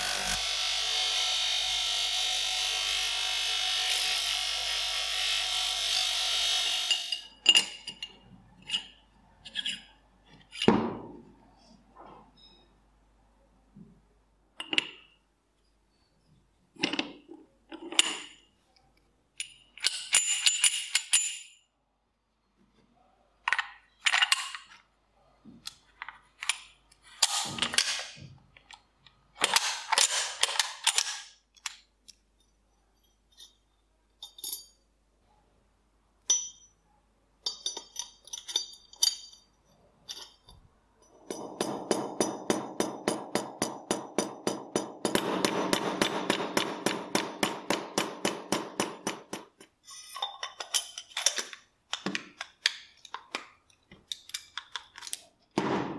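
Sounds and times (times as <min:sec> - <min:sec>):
metal parts scraping and clicking: 0:06.7 - 0:10.8, 0:16.7 - 0:18.6, 0:19.4 - 0:21.6, 0:23.4 - 0:24.8, 0:25.9 - 0:28.8, 0:29.4 - 0:34.8, 0:37.5 - 0:42.5, 0:48.9 - 0:55.6.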